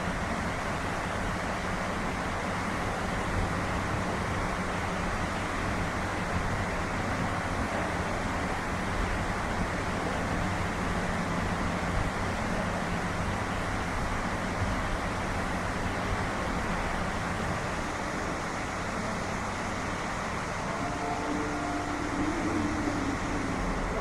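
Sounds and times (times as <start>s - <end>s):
machinery rumble and hiss: 0.0s - 24.0s
low hum: 17.4s - 24.0s
faint tones: 18.1s - 24.0s.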